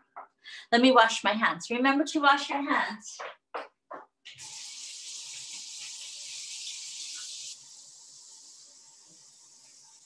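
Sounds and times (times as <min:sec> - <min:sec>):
faucet running into sink: 0:04.3 - 0:10.0.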